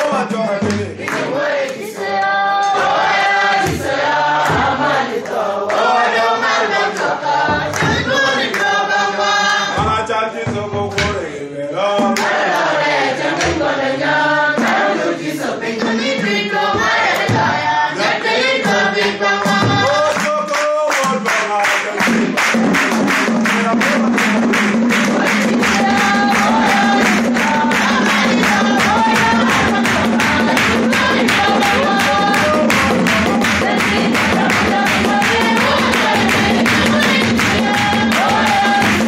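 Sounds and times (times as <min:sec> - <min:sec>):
hand claps: 0:00.0 - 0:03.0, 0:03.6 - 0:06.0, 0:06.8 - 0:08.8, 0:10.9 - 0:11.2, 0:12.1 - 0:12.4, 0:14.6 - 0:14.9, 0:17.1 - 0:17.3, 0:18.2 - 0:39.0
voices singing along: 0:00.0 - 0:22.1, 0:23.6 - 0:39.0
man singing: 0:09.7 - 0:12.2, 0:19.8 - 0:22.0.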